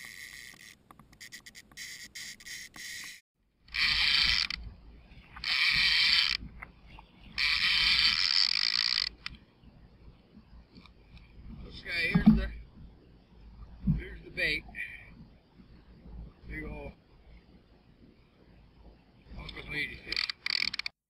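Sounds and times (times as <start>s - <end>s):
fishing reel clicking: 0.0s - 4.6s, 5.4s - 6.4s, 7.4s - 9.4s, 19.5s - 20.9s
fishing reel drag buzzing: 0.0s - 4.6s, 5.3s - 6.4s, 7.4s - 9.3s, 20.0s - 20.9s.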